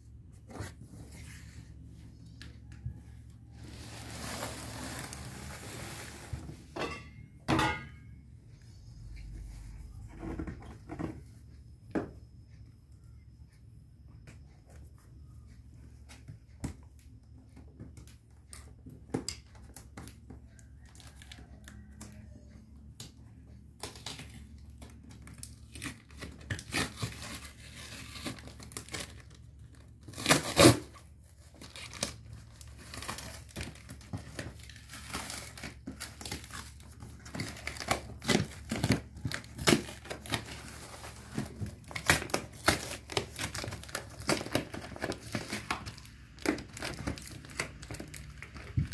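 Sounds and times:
cardboard rustling and scraping: 0:00.2 - 0:06.8
packing tape peeling and ripping: 0:30.0 - 0:31.0, 0:31.6 - 0:33.9, 0:34.6 - 0:48.9.

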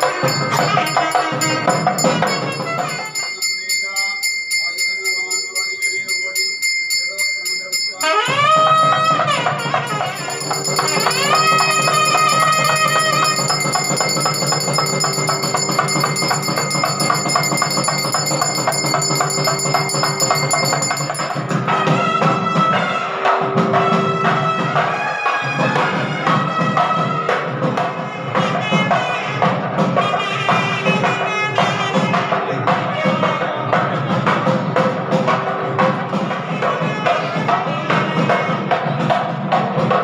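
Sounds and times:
busy drum rhythm: 0:00.0 - 0:04.3, 0:04.9 - 0:40.0
steady high ringing: 0:00.0 - 0:26.0
temple music with percussion: 0:00.0 - 0:40.0
jingling: 0:09.8 - 0:21.7.

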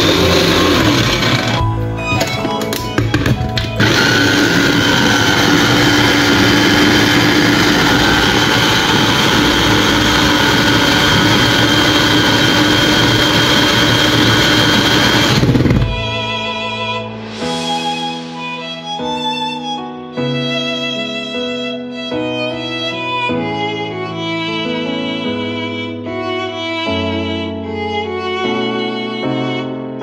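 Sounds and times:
electric chopper motor whining: 0:00.0 - 0:16.1.

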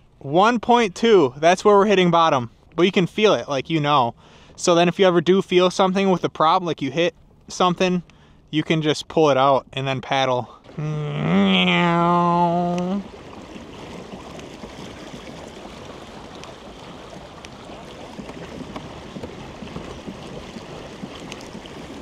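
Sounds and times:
water washing along kayak hull: 0:00.0 - 0:22.0
faint ticks: 0:07.4 - 0:08.2
man making meow call: 0:10.8 - 0:13.0.

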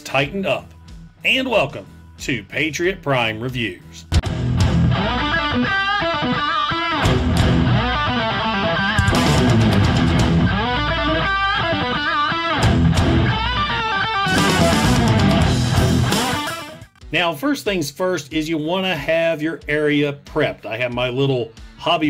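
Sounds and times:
bass and drums: 0:00.0 - 0:22.0
electric guitar lead melody: 0:04.2 - 0:17.0.

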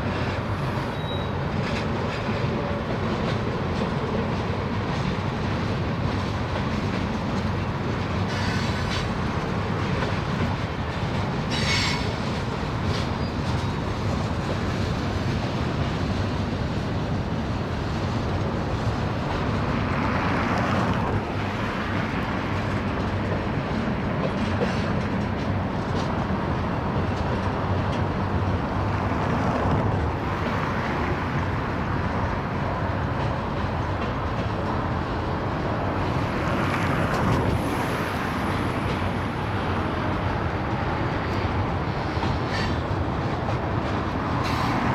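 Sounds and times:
freight train rumbling past: 0:00.0 - 0:44.9
high-pitched wheel squeals: 0:00.6 - 0:01.4.

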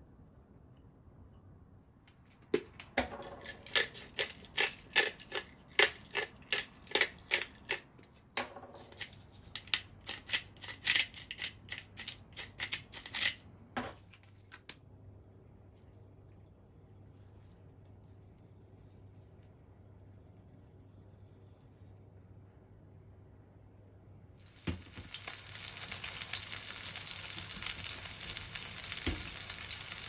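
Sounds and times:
salt and pepper sprinkling rattle: 0:03.4 - 0:07.8, 0:24.4 - 0:30.0.

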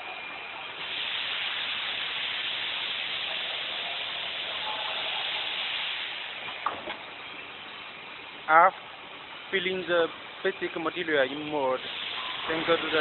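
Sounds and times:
faint machine noise: 0:00.0 - 0:13.0
air hissing from machine: 0:00.7 - 0:07.1, 0:10.7 - 0:13.0.

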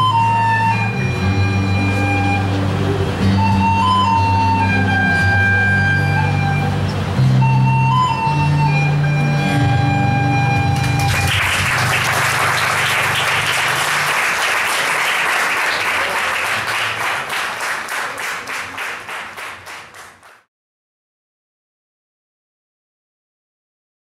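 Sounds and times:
audience applause: 0:10.5 - 0:20.5.

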